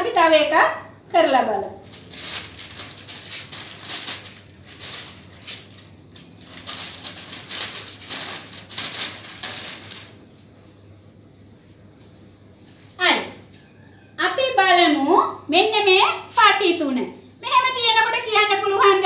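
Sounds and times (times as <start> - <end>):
paper sheets rustling: 1.8 - 10.6.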